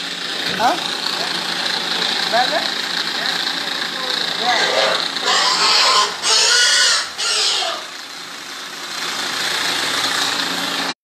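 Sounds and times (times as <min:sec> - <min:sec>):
pigs squealing: 0:04.4 - 0:08.0.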